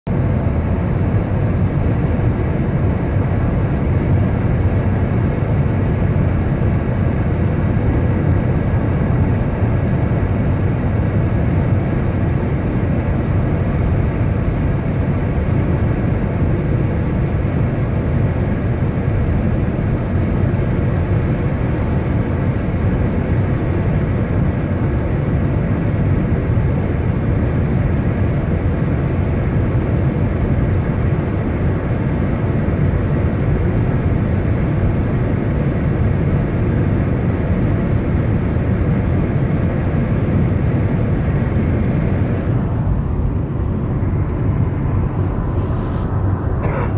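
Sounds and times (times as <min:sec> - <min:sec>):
vehicle road noise: 0:40.8 - 0:46.9.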